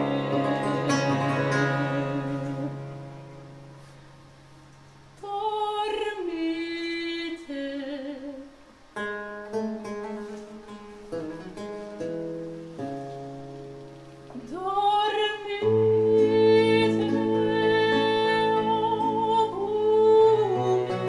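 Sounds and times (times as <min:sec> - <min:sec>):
soprano singing: 0:00.0 - 0:03.6, 0:05.2 - 0:08.6, 0:14.3 - 0:21.0
cello accompaniment: 0:00.0 - 0:03.9, 0:20.2 - 0:21.0
plucked theorbo chords: 0:00.0 - 0:03.9.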